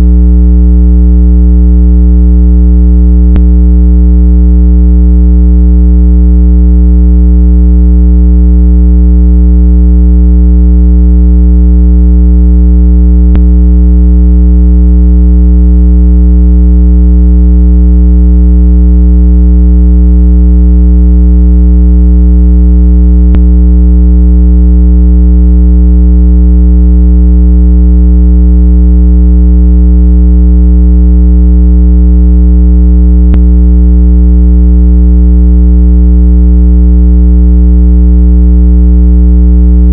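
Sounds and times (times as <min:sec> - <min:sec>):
low buzzing test tone: 0:00.0 - 0:00.3, 0:03.1 - 0:04.0, 0:13.2 - 0:13.6, 0:23.2 - 0:23.6, 0:33.3 - 0:33.6.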